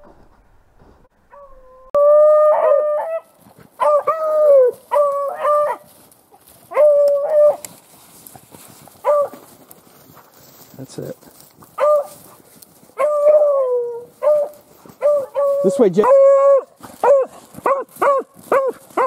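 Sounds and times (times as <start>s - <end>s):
beagle baying: 1.3s - 7.8s, 8.9s - 9.6s, 11.7s - 19.0s.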